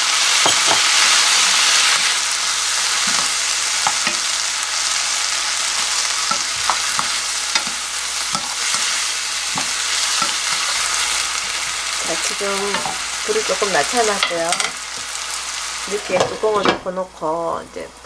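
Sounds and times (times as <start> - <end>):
onions sizzling in oil: 0.0 - 18.0
spatula scraping and tapping pan: 3.0 - 4.4, 5.7 - 13.0.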